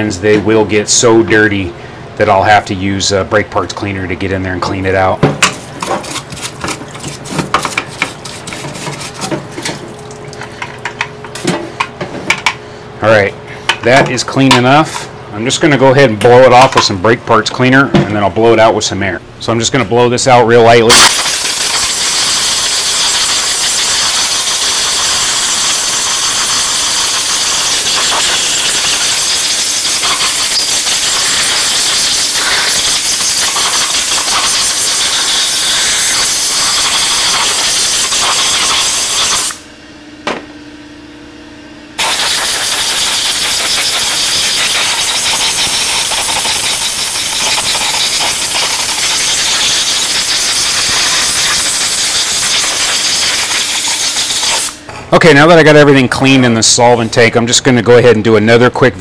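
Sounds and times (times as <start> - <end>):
compressed air blow gun hissing: 21.1 - 26.2, 42.0 - 54.8.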